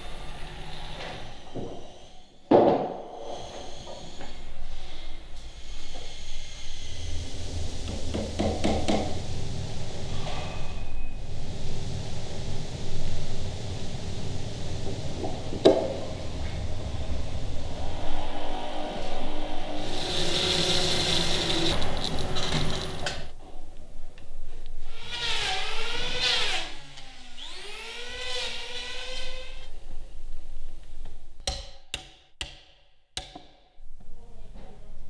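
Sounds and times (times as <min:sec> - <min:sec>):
motor changing pitch: 0:16.8 - 0:21.8.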